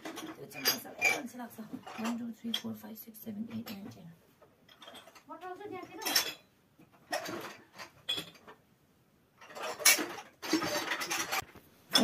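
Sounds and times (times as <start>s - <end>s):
ceramic dishes clinking: 0.0s - 2.7s, 5.9s - 6.5s.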